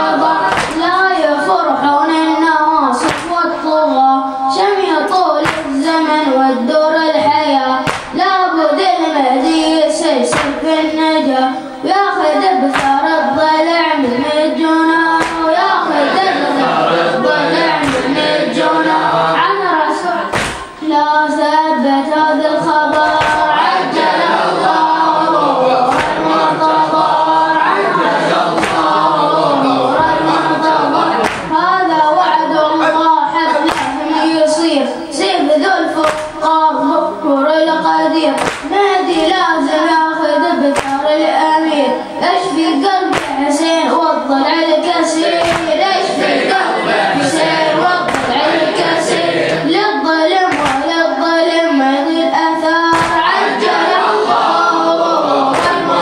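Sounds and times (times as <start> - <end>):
boy chanting into a microphone: 0.0 - 56.0
sharp slaps: 0.4 - 1.0, 3.0 - 3.6, 5.4 - 6.0, 7.8 - 8.3, 10.3 - 10.9, 12.6 - 13.2, 15.0 - 15.8, 17.7 - 18.6, 20.3 - 20.8, 22.9 - 24.1, 25.8 - 26.5, 28.1 - 29.1, 31.1 - 31.6, 33.5 - 34.0, 36.0 - 36.5, 38.3 - 39.4, 40.7 - 41.1, 43.0 - 43.6, 45.4 - 46.1, 48.0 - 49.7, 50.5 - 51.0, 52.8 - 54.1, 55.5 - 56.0.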